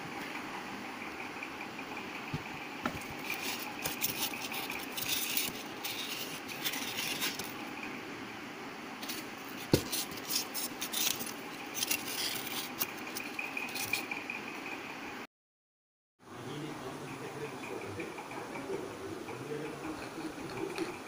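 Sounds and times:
foam rubbing in cardboard box: 2.9 - 7.6.

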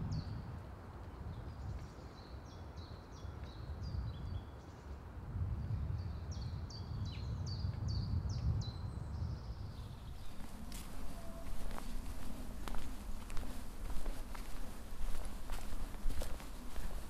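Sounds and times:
songbirds singing: 1.2 - 5.0, 5.6 - 17.0
steady low rumble: 9.5 - 17.0.

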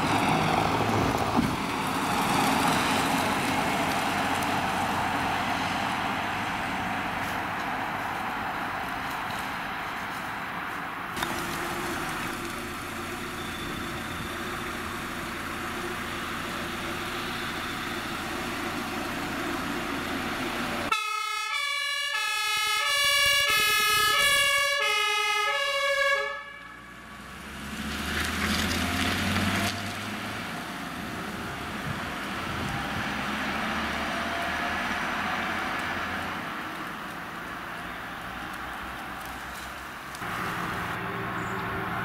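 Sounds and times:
vehicle driving off: 0.0 - 20.9, 26.5 - 42.0
truck engine running: 11.2 - 20.9
fire engine two-tone siren: 20.9 - 27.2.

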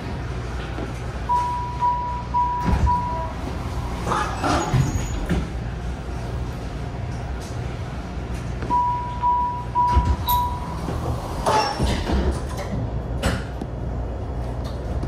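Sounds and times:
train car low hum: 0.0 - 15.0
short high warning beeps: 1.3 - 3.4, 8.7 - 10.8
sliding doors shutting with clunk: 9.8 - 13.6.

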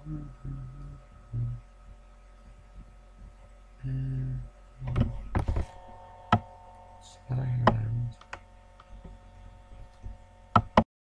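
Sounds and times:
low voice murmuring: 0.0 - 1.6, 3.8 - 5.2, 7.1 - 8.2
low electrical hum: 0.0 - 10.8
knocks and rustles at microphone: 4.8 - 6.5.

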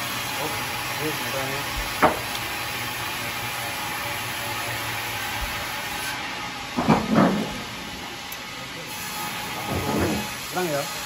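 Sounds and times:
sawmill machinery hiss: 8.8 - 11.0.

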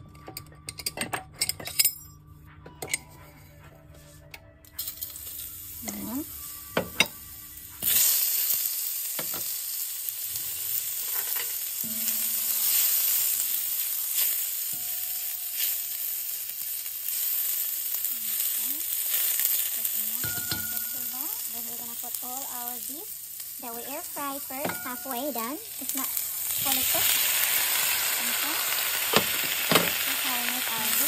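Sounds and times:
onions sizzling in oil: 4.8 - 31.0.

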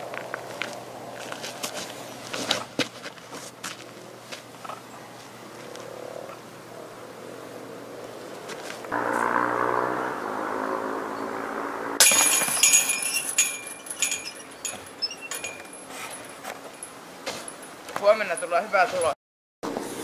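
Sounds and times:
steady hum: 8.9 - 12.0
disc striking metal chains: 12.0 - 19.1.

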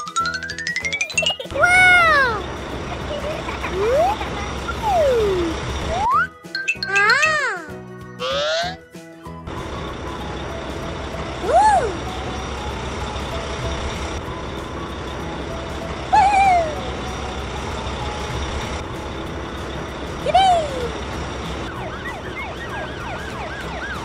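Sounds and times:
cartoon engine rumble: 1.1 - 6.2, 9.5 - 23.2.

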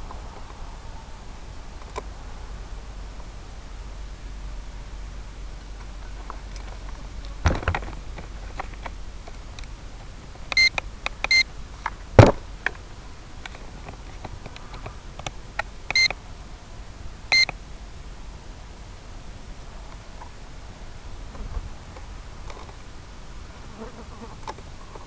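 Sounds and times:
low hiss: 0.0 - 25.0
short high electronic beeps: 15.9 - 16.1.

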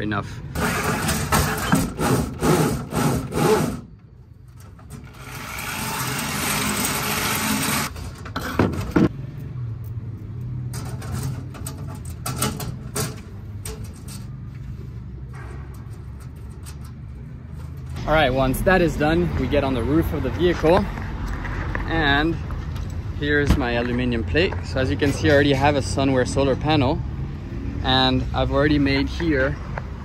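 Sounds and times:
electric drill boring metal: 5.0 - 8.0.

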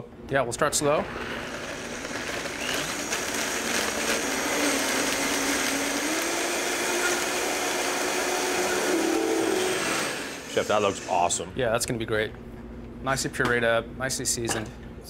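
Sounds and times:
blender running: 1.0 - 11.5.

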